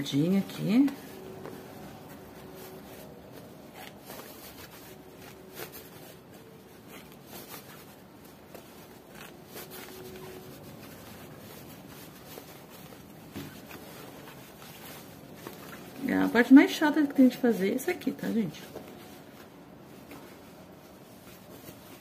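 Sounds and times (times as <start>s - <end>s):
fabric rustling and scraping: 0.0s - 22.0s.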